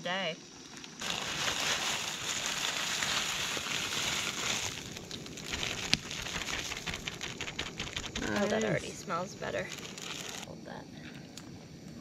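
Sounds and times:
camp stove hissing: 0:00.6 - 0:10.6
bubbling water: 0:01.0 - 0:08.2
plastic bag crinkling: 0:01.0 - 0:10.5.

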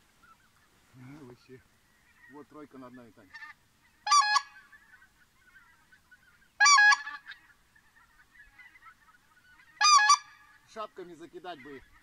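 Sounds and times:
faint goose calling: 0:00.0 - 0:12.0
goose honking: 0:00.2 - 0:12.0.

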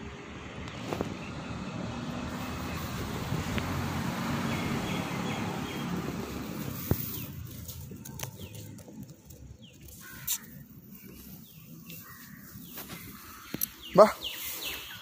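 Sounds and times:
birds chirping: 0:00.7 - 0:15.0
faint rustle: 0:06.6 - 0:15.0.

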